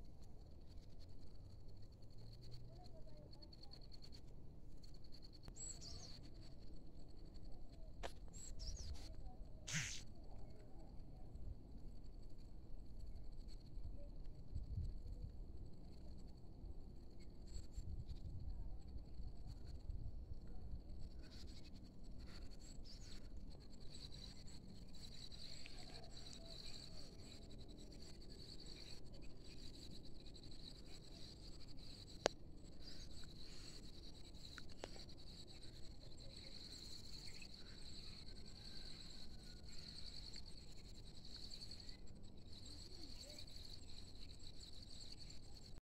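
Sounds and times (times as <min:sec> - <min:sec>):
faint low rumble: 0:00.0 - 0:45.8
high-pitched insect chorus: 0:04.8 - 0:11.0, 0:17.0 - 0:45.8.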